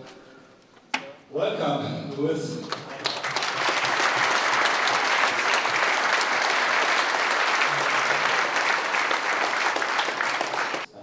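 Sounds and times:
crowd applause: 2.8 - 10.9.

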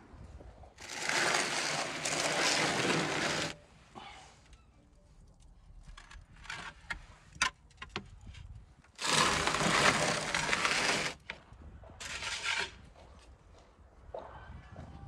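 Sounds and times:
metal tray scraping on stone: 0.8 - 3.6, 9.0 - 11.2, 12.0 - 12.8.

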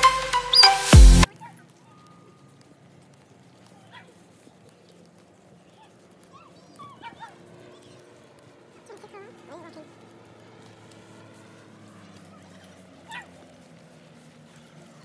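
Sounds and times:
distant high chirping animal calls: 0.5 - 0.9.

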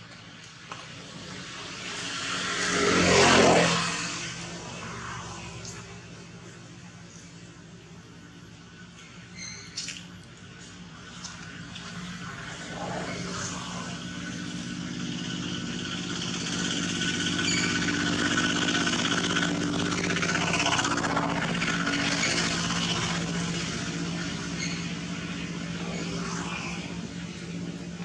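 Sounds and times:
motor engine humming: 10.3 - 28.0.

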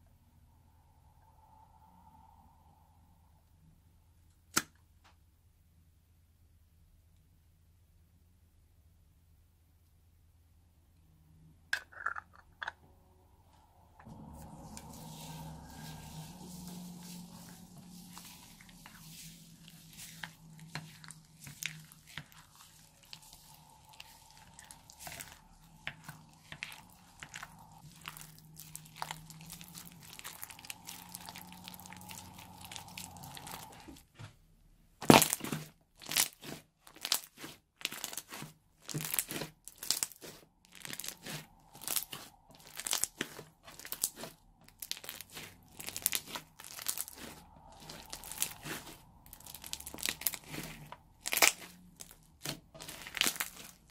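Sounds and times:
spatula stirring foam beads: 14.0 - 34.3, 35.0 - 53.9
slime crunching when squeezed: 14.4 - 33.8, 35.0 - 53.9.

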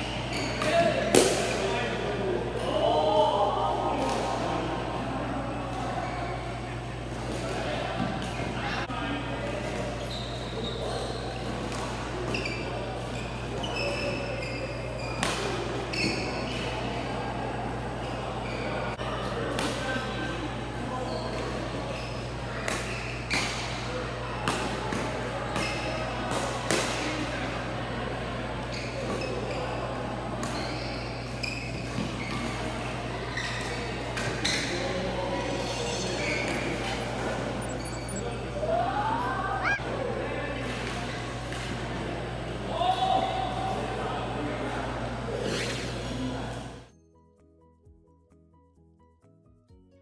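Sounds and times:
murmur of voices: 0.0 - 46.9
shoes squeaking on court: 0.1 - 0.8, 9.9 - 11.6, 12.3 - 16.7, 30.4 - 32.6, 33.2 - 38.6, 39.3 - 39.8, 45.4 - 46.2
steady low hum: 35.0 - 40.2.

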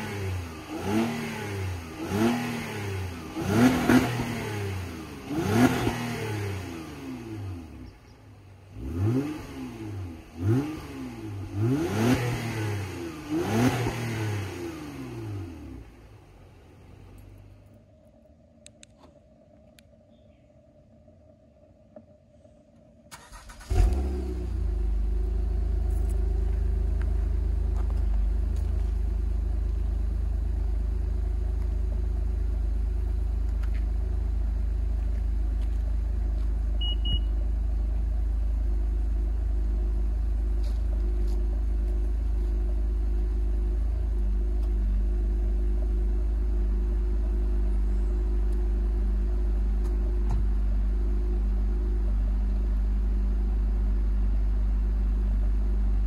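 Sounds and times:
car engine starting and idling: 0.0 - 56.0
short beep: 36.8 - 37.4.

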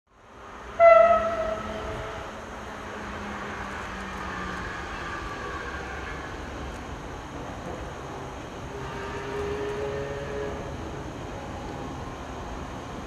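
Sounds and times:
railcar engines running: 0.2 - 13.0
train horn blast: 0.7 - 2.4, 8.7 - 10.8.

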